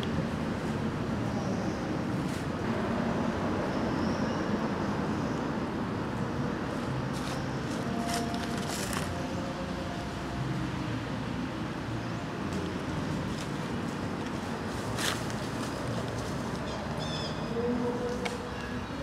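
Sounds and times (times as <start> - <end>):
dry leaves rustling: 6.7 - 10.0, 12.5 - 19.0.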